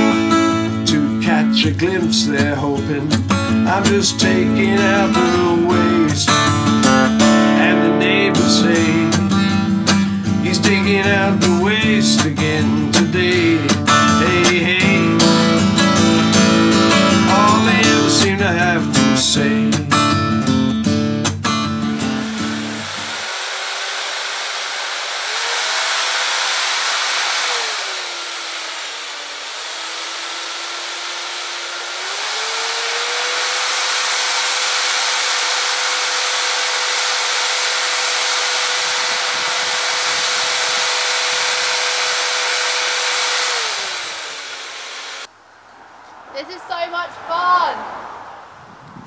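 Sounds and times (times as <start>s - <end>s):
electric mixer churning pulp: 21.6s - 45.3s.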